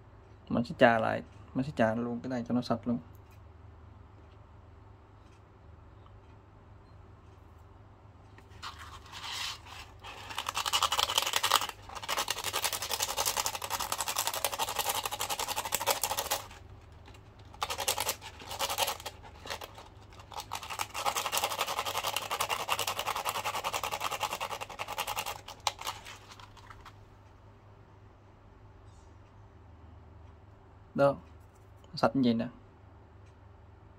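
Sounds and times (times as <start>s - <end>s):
metal scraping on sandpaper: 8.5s - 16.6s.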